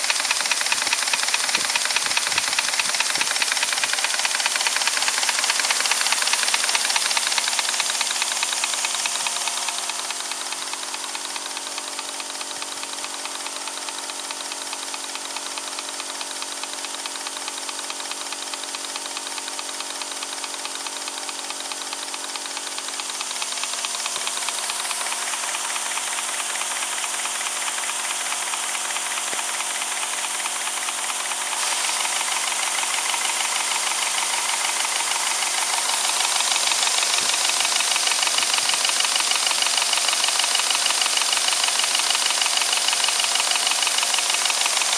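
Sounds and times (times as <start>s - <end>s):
steam hissing: 0.0s - 8.4s, 31.0s - 44.9s
model steam engine running fast: 0.0s - 44.9s.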